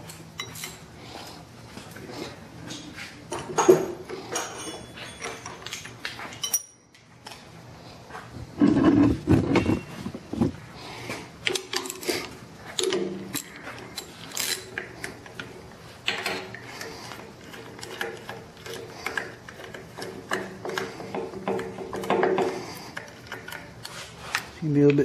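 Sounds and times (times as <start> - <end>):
hand ratchet clicking: 16.1 - 24.5.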